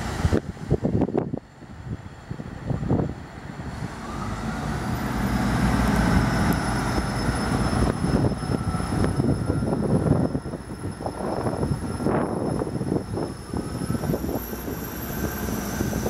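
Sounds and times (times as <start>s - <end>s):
diesel train engines accelerating: 0.0s - 16.0s
high whine: 4.0s - 16.0s.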